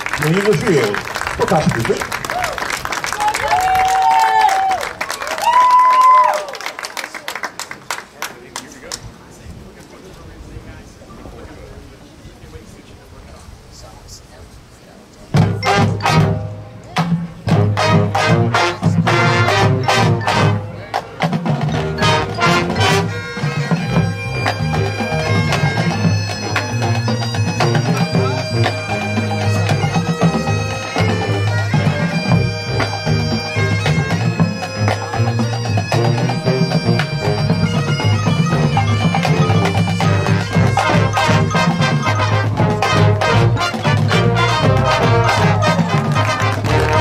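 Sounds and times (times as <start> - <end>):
marching band playing: 0.0 - 6.2, 15.3 - 47.0
brass and winds holding chords: 15.4 - 47.0.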